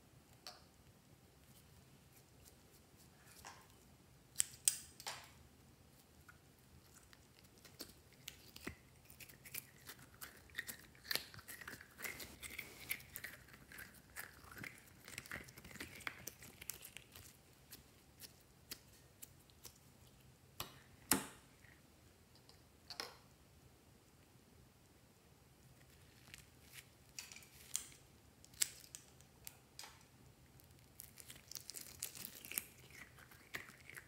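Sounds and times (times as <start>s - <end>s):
slime crackling: 6.8s - 20.2s, 30.6s - 34.0s.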